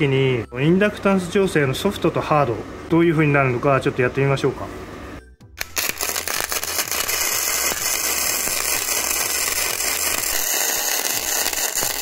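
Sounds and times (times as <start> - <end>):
welding arc crackling: 5.6 - 12.0.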